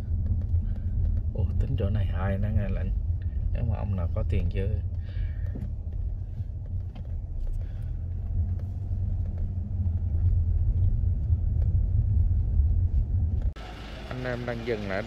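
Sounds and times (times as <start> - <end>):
car engine and road noise: 0.0 - 15.0.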